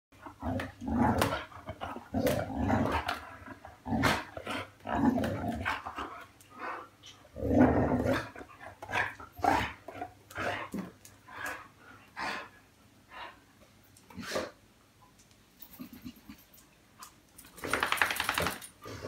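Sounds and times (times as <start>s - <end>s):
dogs growling while play-fighting: 0.2s - 12.6s
dogs snapping: 17.4s - 18.7s.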